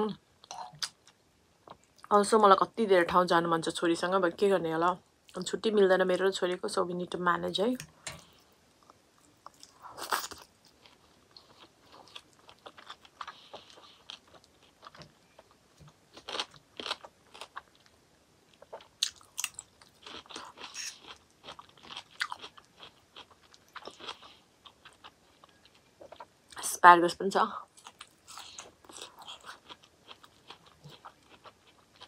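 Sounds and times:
chewing food: 7.8 - 26.6, 27.7 - 32.0.

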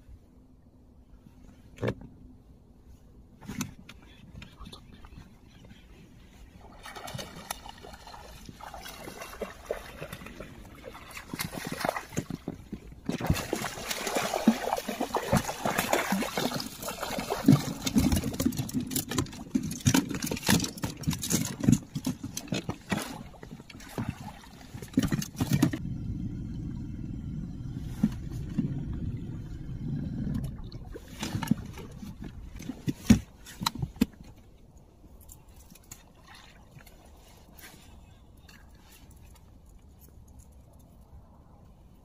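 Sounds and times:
fish splashing in water: 13.2 - 18.6.

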